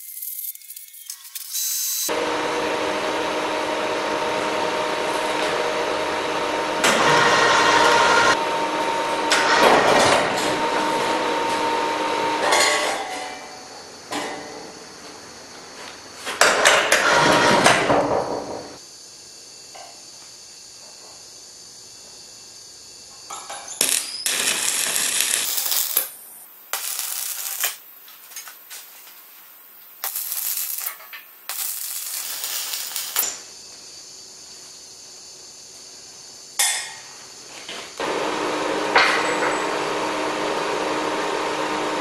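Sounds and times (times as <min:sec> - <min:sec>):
arc welding crackling hiss: 0:00.0 - 0:02.1, 0:23.7 - 0:36.1.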